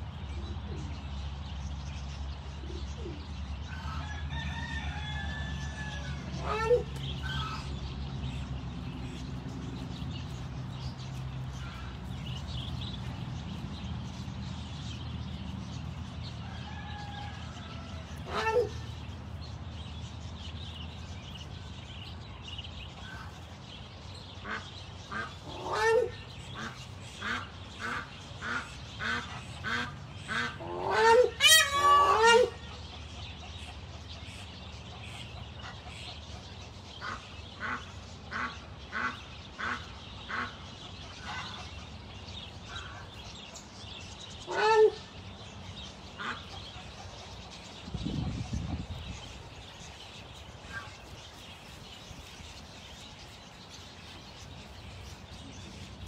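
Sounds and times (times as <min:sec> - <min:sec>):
ducks quacking: 0:06.4 - 0:08.4, 0:18.2 - 0:19.0, 0:24.4 - 0:42.0, 0:44.3 - 0:45.2, 0:46.0 - 0:49.0.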